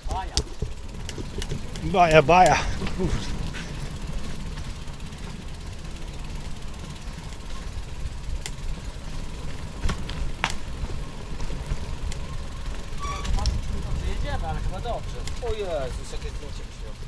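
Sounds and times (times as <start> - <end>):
sharp clicks or rattles: 0.0 - 8.8, 11.6 - 16.0
wind rumbling on microphone: 0.0 - 17.0.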